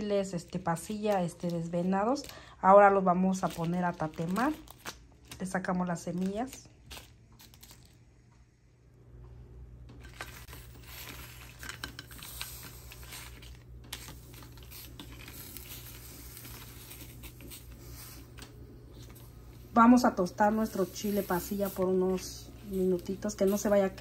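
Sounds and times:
dried chiles crinkling and clicking: 0.0s - 8.0s
steady low hum: 0.0s - 24.0s.

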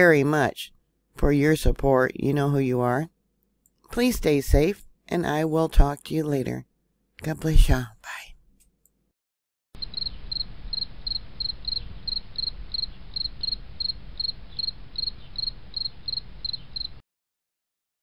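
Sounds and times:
cricket chirping: 9.8s - 17.0s.

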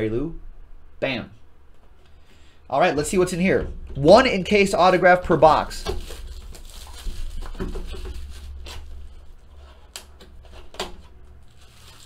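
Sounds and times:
cardboard packaging rustling: 4.9s - 12.0s.

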